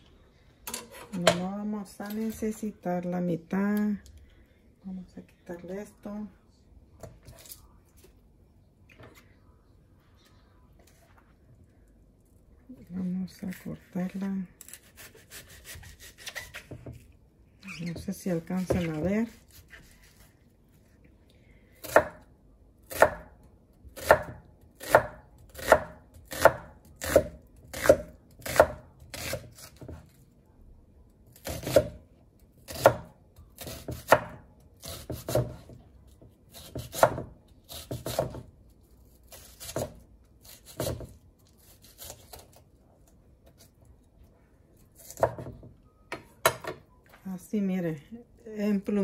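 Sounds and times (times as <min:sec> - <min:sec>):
knife slicing onion on board: 0:14.6 - 0:17.0, 0:18.0 - 0:20.3, 0:22.9 - 0:23.3, 0:24.0 - 0:30.2, 0:31.3 - 0:32.0, 0:32.7 - 0:35.8, 0:36.5 - 0:38.5, 0:39.2 - 0:42.6, 0:45.0 - 0:45.6.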